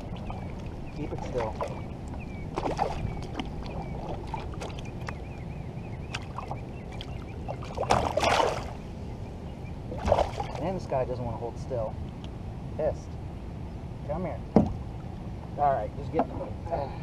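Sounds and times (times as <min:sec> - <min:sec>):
fish splashing in water: 0:02.5 - 0:05.2, 0:06.1 - 0:08.8, 0:09.9 - 0:10.6.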